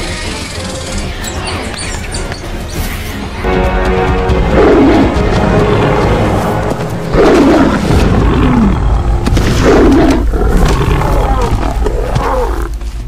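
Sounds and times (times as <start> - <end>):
background music: 0.0 - 13.0
lion roaring: 4.5 - 12.8.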